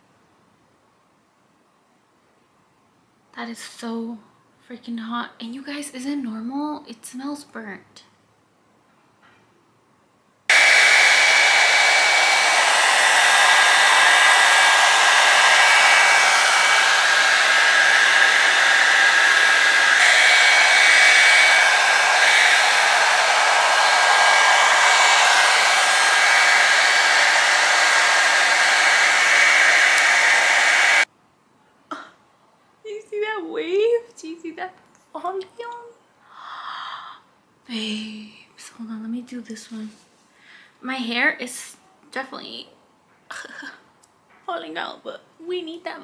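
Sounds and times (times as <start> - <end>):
hair dryer brush running: 10.5 - 31.1.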